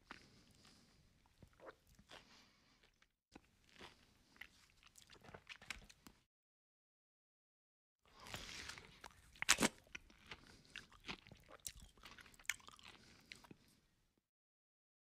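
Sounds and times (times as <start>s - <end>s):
chewing food: 0.0s - 6.2s, 8.1s - 13.9s.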